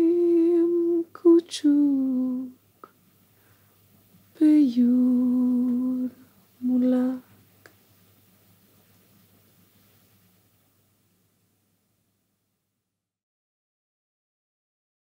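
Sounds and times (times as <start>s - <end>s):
woman humming a lullaby: 0.0s - 2.6s, 4.4s - 7.2s.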